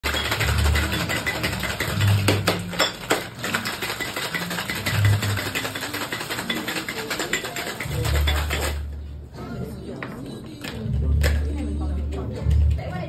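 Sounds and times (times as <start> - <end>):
ice rattling in cocktail shaker: 0.0 - 8.9
background music: 0.0 - 13.0.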